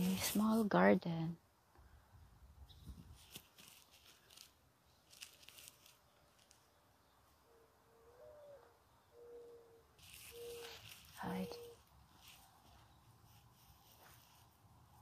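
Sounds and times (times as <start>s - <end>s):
dove cooing: 7.4s - 11.9s.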